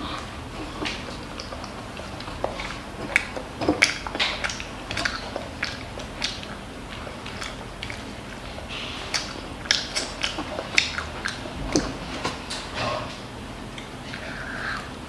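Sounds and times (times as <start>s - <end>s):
child chewing food: 0.0s - 15.0s.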